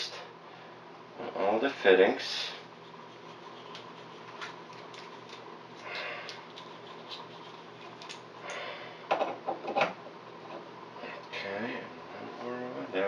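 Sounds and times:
faint steady hum: 0:00.0 - 0:13.0
flux brush rubbing scrapes: 0:02.3 - 0:05.5, 0:06.4 - 0:08.0.

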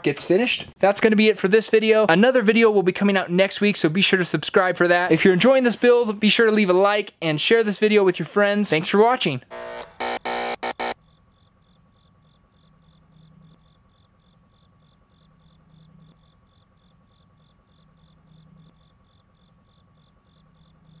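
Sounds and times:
insect chirping: 0:10.7 - 0:21.0.

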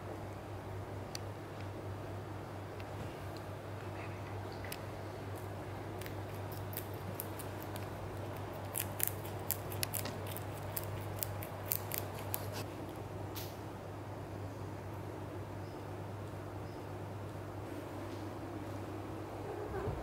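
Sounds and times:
steady low hum: 0:00.0 - 0:20.0
rabbit crunching vegetable: 0:04.7 - 0:13.5.

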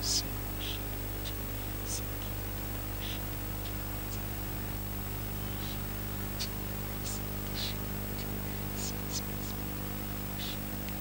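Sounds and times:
electrical hum from sound system: 0:00.0 - 0:11.0.

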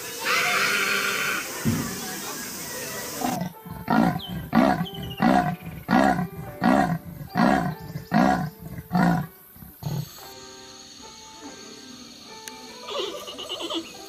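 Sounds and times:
leopard sawing roars: 0:03.2 - 0:10.2.

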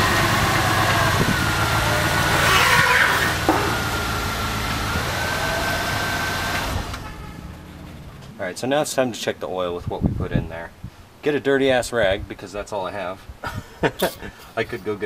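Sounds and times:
car engine running: 0:00.0 - 0:08.2.

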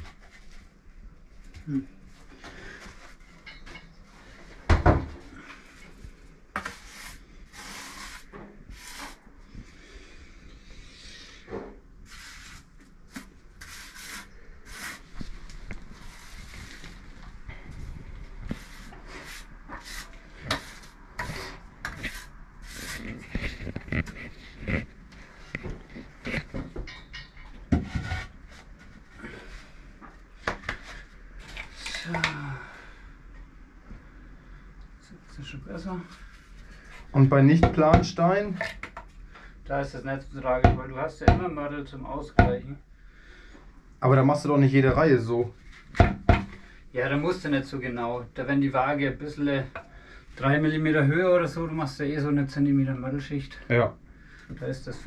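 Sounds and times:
trowel scraping wet mortar: 0:06.6 - 0:09.2, 0:12.1 - 0:15.1, 0:18.5 - 0:24.2
concrete block knocking and scraping: 0:25.5 - 0:28.3.

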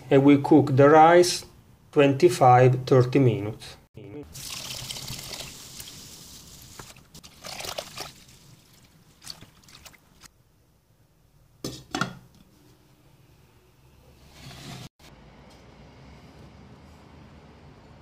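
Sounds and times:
water pouring into a pot: 0:04.3 - 0:10.2
water dripping: 0:04.4 - 0:10.3.

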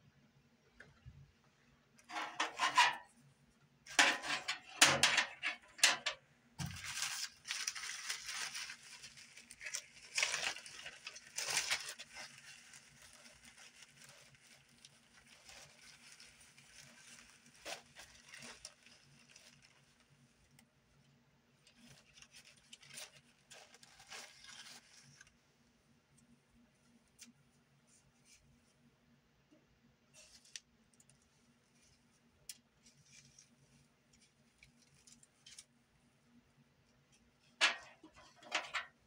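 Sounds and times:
hands rustling materials on metal tray: 0:02.0 - 0:03.2, 0:03.9 - 0:20.7, 0:21.6 - 0:25.4, 0:37.2 - 0:39.0.

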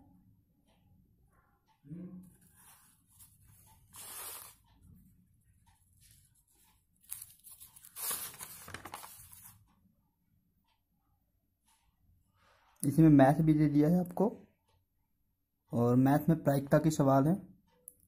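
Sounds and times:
paper sheets rustling: 0:02.5 - 0:04.6, 0:06.0 - 0:09.6.

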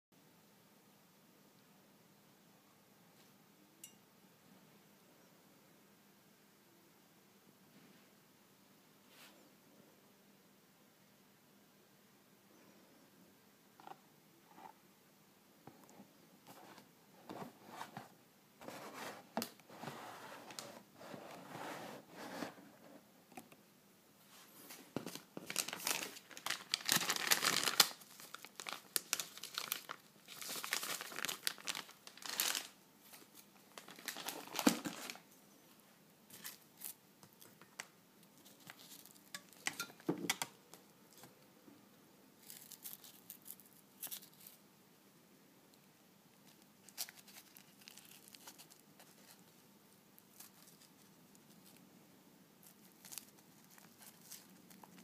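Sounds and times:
plastic packet crinkling: 0:25.1 - 0:35.2, 0:36.3 - 0:40.6, 0:46.5 - 0:49.4, 0:52.6 - 0:55.0.

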